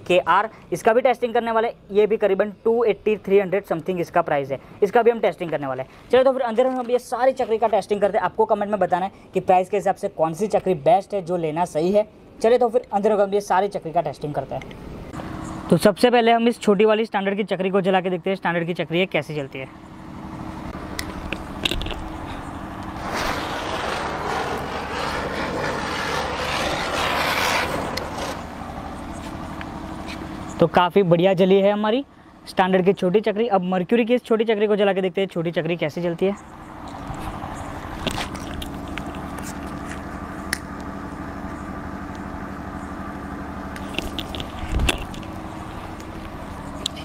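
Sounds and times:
low background hum: 0:00.0 - 0:47.0
spinner firework hissing: 0:21.4 - 0:30.5.

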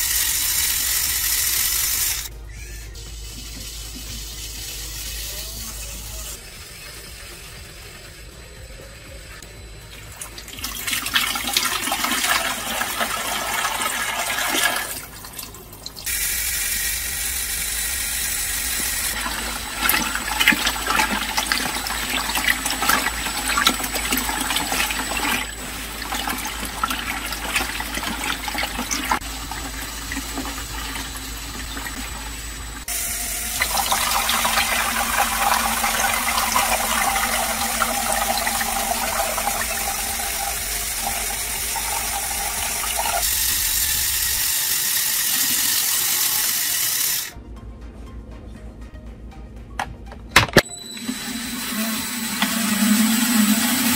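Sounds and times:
water running and splashing: 0:18.7 - 0:47.3.

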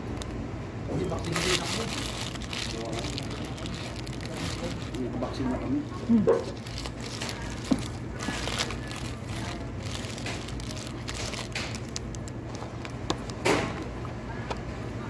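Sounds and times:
low room hum: 0:00.0 - 0:15.0
paper wrapper crinkling: 0:01.0 - 0:05.7, 0:06.4 - 0:13.4
small clicks and crackles: 0:01.1 - 0:05.4, 0:06.5 - 0:13.4
chewing: 0:06.4 - 0:13.4.

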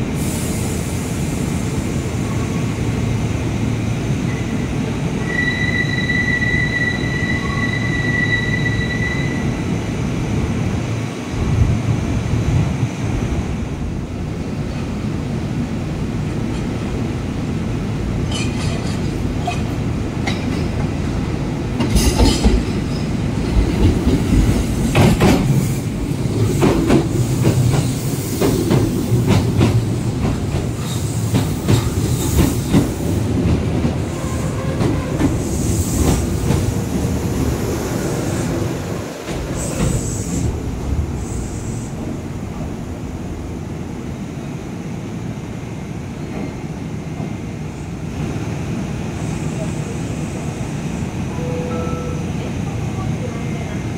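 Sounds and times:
train wheel squeal: 0:04.3 - 0:09.6
train rumble: 0:06.1 - 0:53.9.

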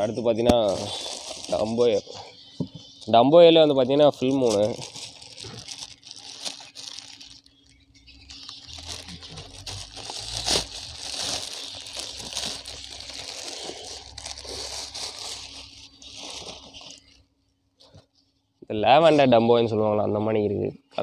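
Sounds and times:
plastic bags crinkling: 0:00.0 - 0:02.4, 0:03.1 - 0:17.4.

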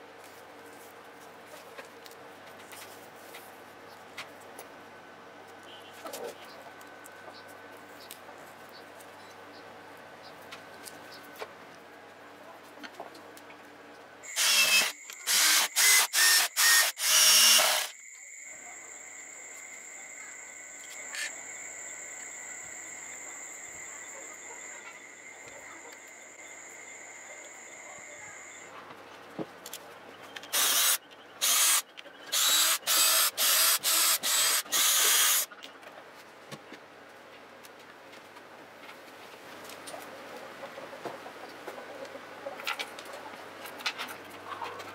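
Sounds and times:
faint high-pitched whine: 0:12.0 - 0:29.3
cordless drill driving screws: 0:14.3 - 0:17.9, 0:30.5 - 0:35.5.

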